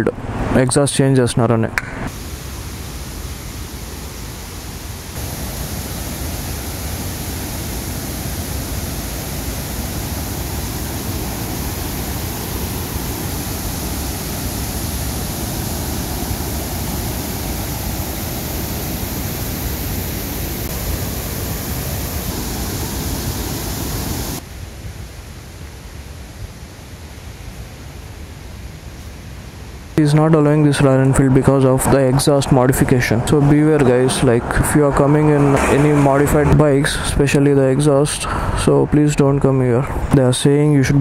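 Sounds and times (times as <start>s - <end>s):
wind rushing on microphone: 3.3s - 24.4s, 31.2s - 40.2s.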